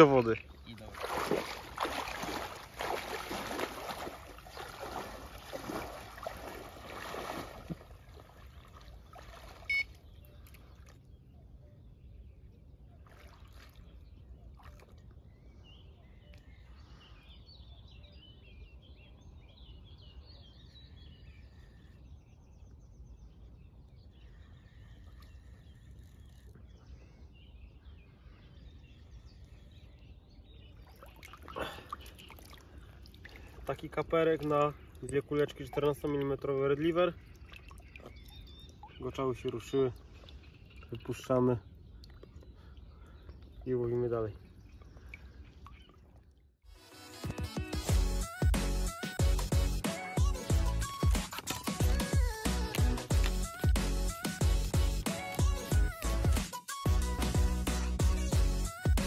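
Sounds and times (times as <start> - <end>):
person wading in water: 0.0 - 11.3, 12.8 - 15.3, 30.7 - 43.7, 44.4 - 46.5
faint birdsong: 0.0 - 46.5.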